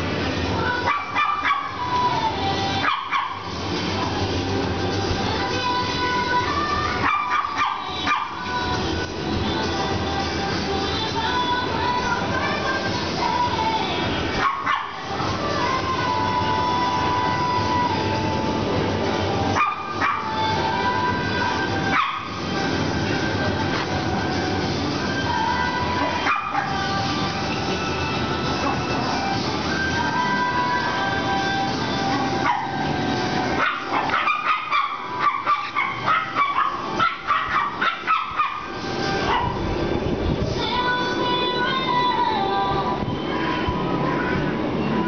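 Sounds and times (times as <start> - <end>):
background music with held notes: 0.0 - 45.0
small dog yapping: 33.6 - 38.7.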